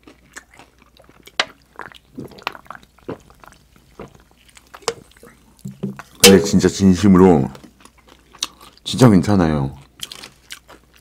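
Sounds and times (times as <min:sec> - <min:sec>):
person gulping a drink: 0:00.4 - 0:05.7.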